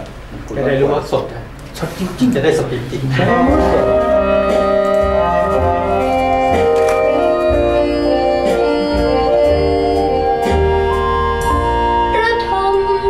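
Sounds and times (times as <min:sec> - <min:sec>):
song introduction over loudspeakers: 0:03.1 - 0:13.0.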